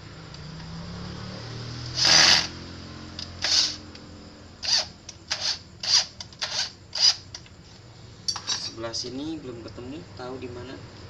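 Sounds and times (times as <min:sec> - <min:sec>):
electric screwdriver motor whir: 0:02.0 - 0:02.5, 0:03.4 - 0:03.8, 0:04.6 - 0:07.2.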